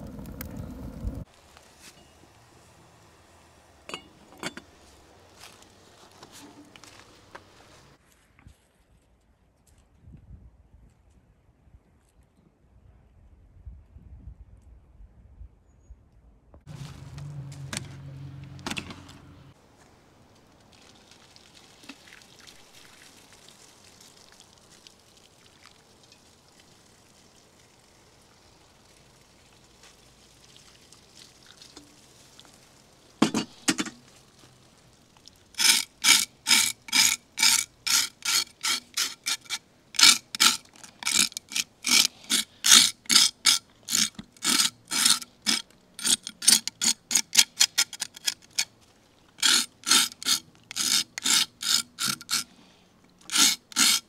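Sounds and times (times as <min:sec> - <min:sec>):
knife scraping fish skin: 0:35.6 - 0:48.7, 0:49.4 - 0:52.5, 0:53.3 - 0:54.0.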